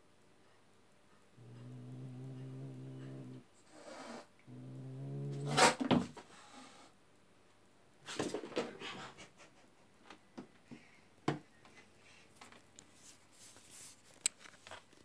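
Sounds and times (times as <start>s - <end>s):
cat hissing: 1.4s - 6.9s.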